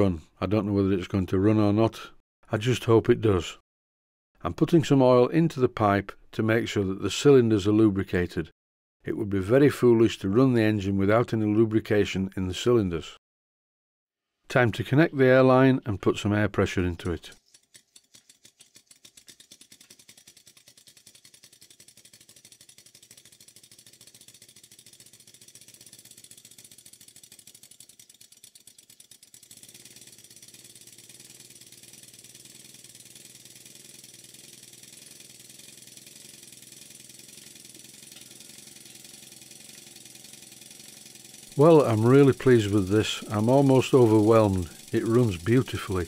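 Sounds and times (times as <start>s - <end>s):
model steam engine exhaust beating: 19.1s - 46.0s.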